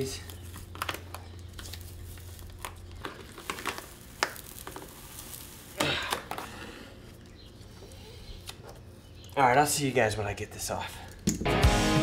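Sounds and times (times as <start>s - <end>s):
foam decking tearing: 0.0s - 6.6s
foam scratches and clicks: 0.0s - 6.6s.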